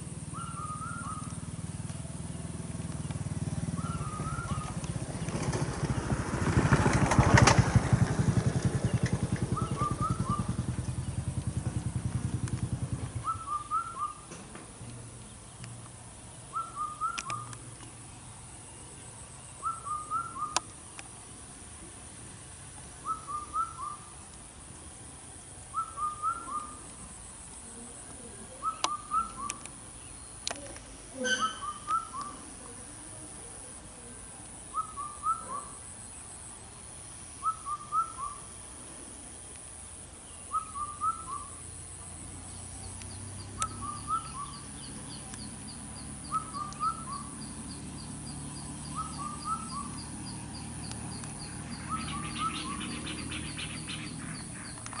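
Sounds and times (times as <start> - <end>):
bird calling rising notes: 0.2 - 14.4, 16.5 - 17.8, 19.4 - 20.7, 23.0 - 24.2, 25.7 - 27.0, 28.5 - 32.6, 34.7 - 35.8, 37.4 - 38.6, 40.2 - 41.8, 42.6 - 55.0.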